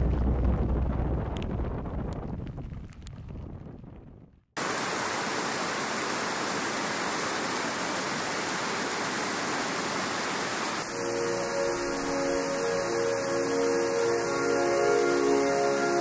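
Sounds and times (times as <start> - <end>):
steady rushing noise: 4.6 - 16.0
soft music with long held notes: 10.8 - 16.0.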